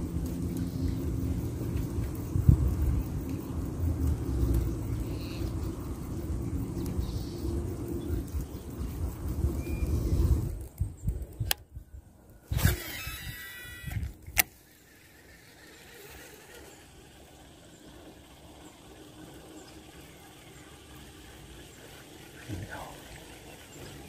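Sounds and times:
reel spool whirring: 0:00.0 - 0:11.6, 0:12.2 - 0:24.0
wind buffeting microphone: 0:01.2 - 0:05.1, 0:05.8 - 0:14.4
sharp reel click: 0:12.5 - 0:17.0.

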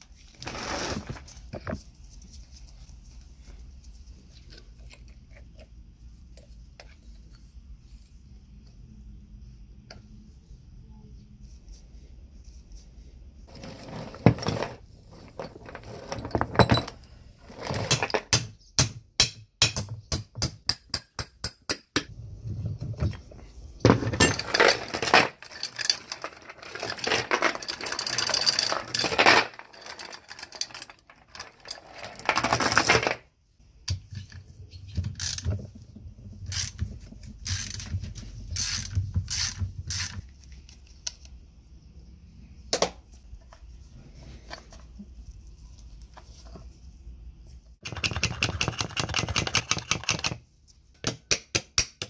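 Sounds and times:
metal parts clinking: 0:14.4 - 0:18.3, 0:23.9 - 0:33.2
chain rattling: 0:24.2 - 0:32.4
chain clicking through wheel: 0:24.3 - 0:32.0.

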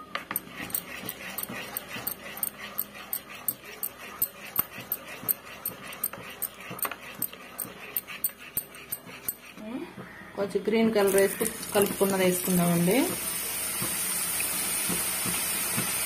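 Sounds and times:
spoon stirring thick batter: 0:00.0 - 0:09.7.

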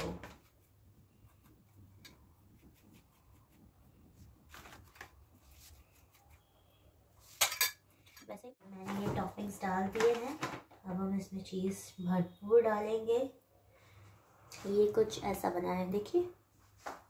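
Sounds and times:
dishes and utensils clinking: 0:07.3 - 0:08.3.

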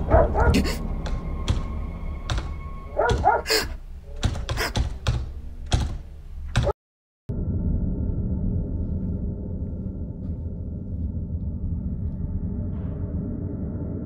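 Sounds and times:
dog barking: 0:00.0 - 0:00.8, 0:02.9 - 0:03.7
door lock rattling and clicking: 0:04.2 - 0:06.7.

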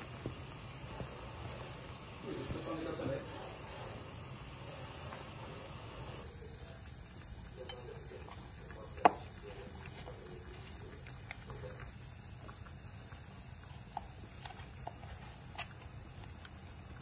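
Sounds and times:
cream ticking and popping in pan: 0:06.1 - 0:17.0.

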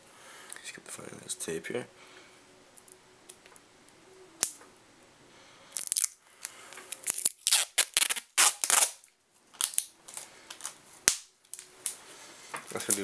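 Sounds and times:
tape ripping off roll: 0:05.8 - 0:12.0.

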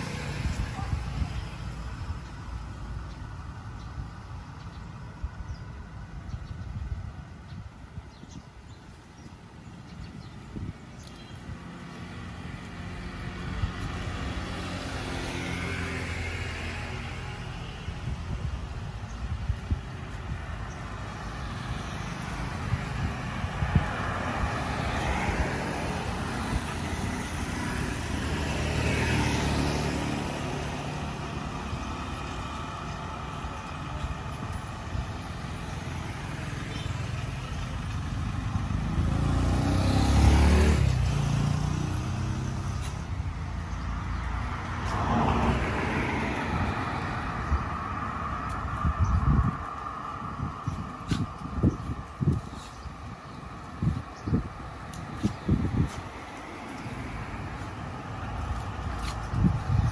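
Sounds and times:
traffic rumble: 0:00.0 - 0:59.9
vehicles passing: 0:00.0 - 0:59.9.

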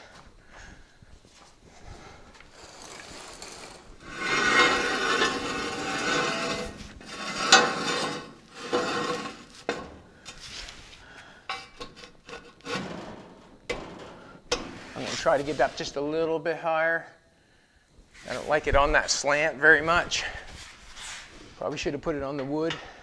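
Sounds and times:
metallic scraping of jack stand: 0:02.6 - 0:10.7, 0:11.5 - 0:15.9.

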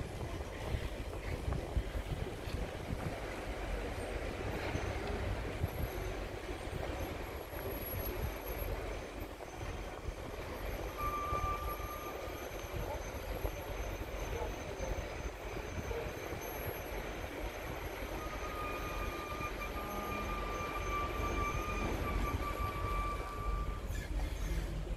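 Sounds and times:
train wheels clattering on track: 0:00.0 - 0:24.9
high-pitched wheel squeal: 0:03.3 - 0:24.9.

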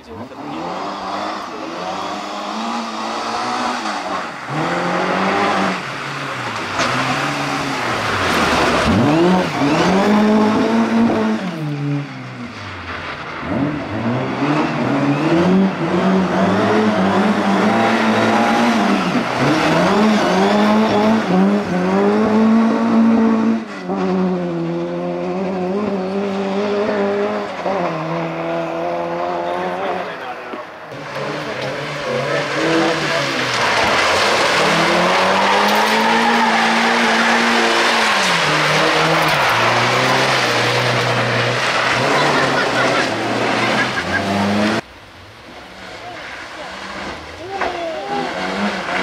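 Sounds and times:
rally car engine revving: 0:00.0 - 0:49.0
tyre squeal: 0:32.1 - 0:44.8.

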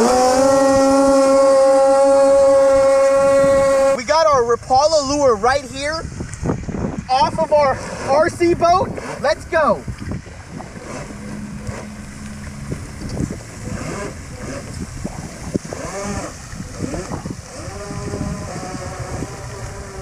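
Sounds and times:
model boat motor running: 0:00.0 - 0:06.7, 0:07.3 - 0:20.0
wind buffeting microphone: 0:00.0 - 0:20.0.

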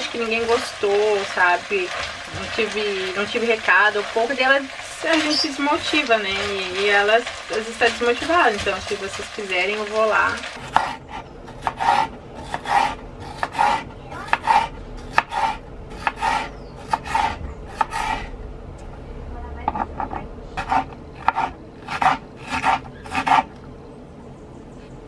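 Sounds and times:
knife cutting pepper on board: 0:10.6 - 0:18.3, 0:19.7 - 0:23.5.

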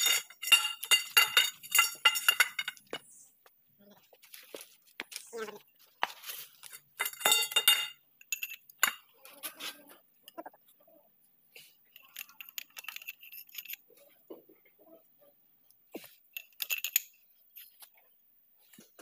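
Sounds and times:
metal tools clinking and knocking: 0:00.0 - 0:03.1, 0:06.4 - 0:09.2, 0:11.9 - 0:14.4, 0:16.0 - 0:18.0.

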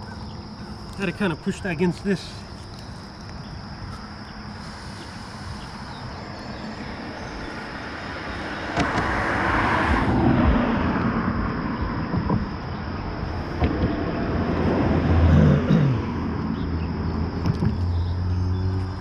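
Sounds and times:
vehicle passing over bridge: 0:06.7 - 0:15.4.

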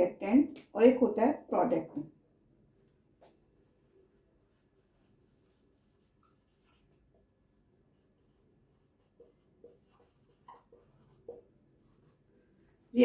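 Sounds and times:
marker writing on whiteboard: 0:03.2 - 0:12.4.

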